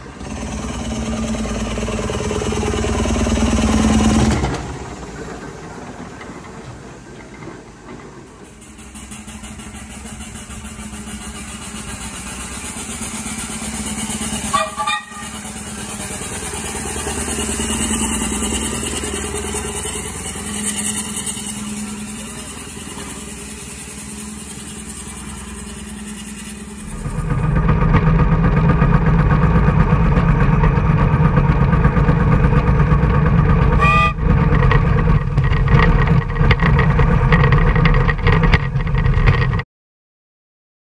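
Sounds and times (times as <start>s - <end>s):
steam tractor running: 0.0s - 39.6s
steam hissing: 8.3s - 27.5s
steam whistle toot: 14.4s - 15.4s, 33.8s - 34.3s.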